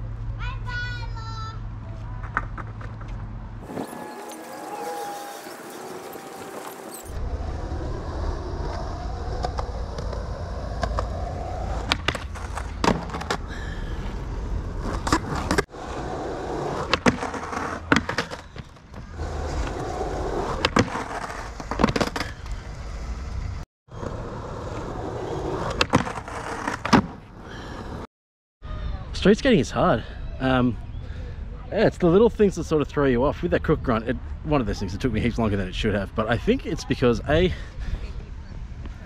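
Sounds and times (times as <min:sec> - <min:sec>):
skateboard trucks grinding on concrete: 0:02.2 - 0:28.1
skateboard wheels rolling: 0:02.2 - 0:28.1
skateboard slapping down: 0:25.6 - 0:27.2
skateboard tail pops: 0:25.7 - 0:27.2.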